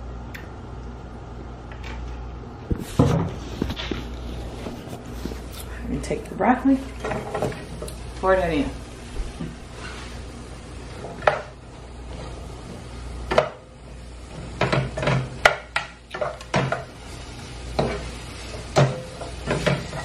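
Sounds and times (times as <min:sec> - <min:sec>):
utensil scraping frying pan: 0:06.8 - 0:08.2, 0:09.6 - 0:20.0.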